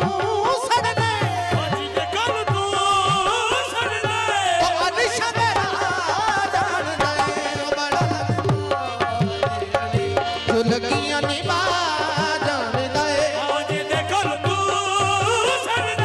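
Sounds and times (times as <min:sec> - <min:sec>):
harmonium chords: 0:00.0 - 0:16.0
tabla strokes: 0:00.0 - 0:16.0.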